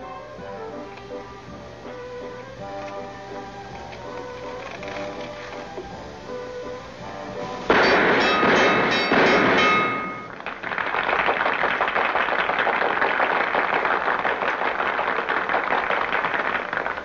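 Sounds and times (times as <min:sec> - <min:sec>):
loud ringing tone: 0:07.7 - 0:10.4
crowd applauding: 0:10.3 - 0:17.0.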